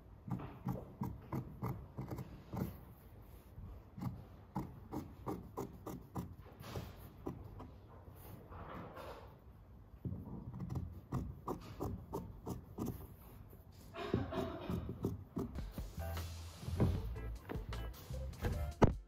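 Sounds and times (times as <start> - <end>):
scissors snipping fabric: 3.9 - 6.4.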